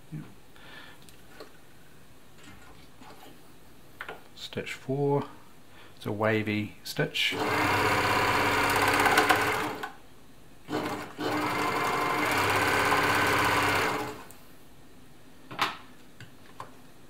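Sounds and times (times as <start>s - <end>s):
sewing machine running: 7.3s - 9.9s, 10.7s - 14.3s.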